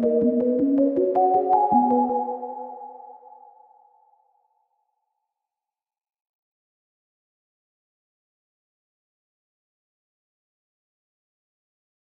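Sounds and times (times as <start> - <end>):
held synthesizer chord: 0.0 - 3.7.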